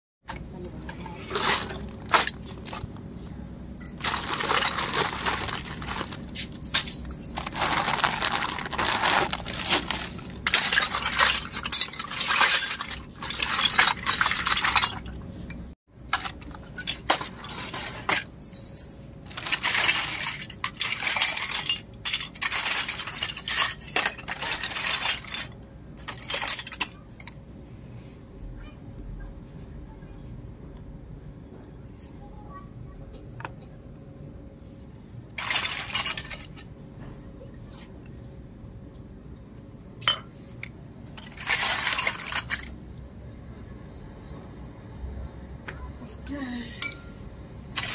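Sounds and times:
toy pots clattering and clinking: 0:00.3 - 0:03.1, 0:03.8 - 0:27.5, 0:35.2 - 0:38.0, 0:39.4 - 0:43.0, 0:45.6 - 0:47.9.

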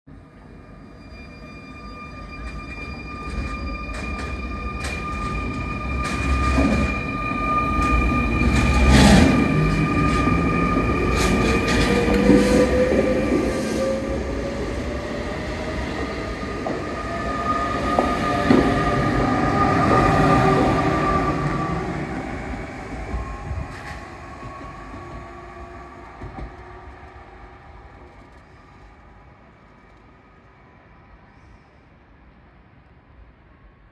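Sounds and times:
high-pitched squeal: 0:00.7 - 0:26.0
train wheels rumbling on rails: 0:02.4 - 0:30.0.

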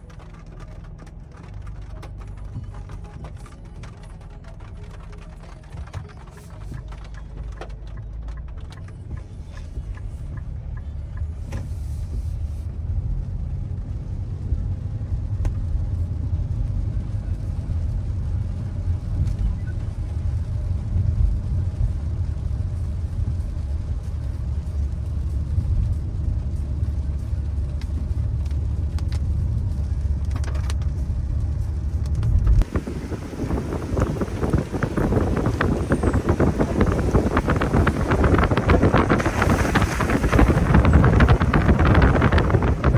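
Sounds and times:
car engine and tyres rumbling: 0:00.0 - 0:42.9
wind buffeting microphone: 0:32.2 - 0:42.9.

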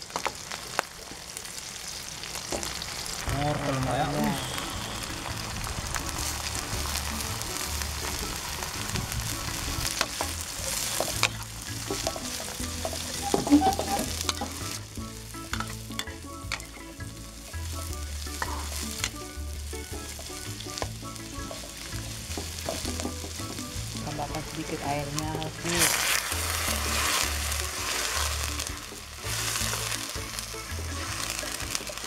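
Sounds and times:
vegetables sizzling in a wok: 0:00.0 - 0:32.0
metal spatula scraping a pan: 0:10.0 - 0:14.8, 0:25.6 - 0:30.0.

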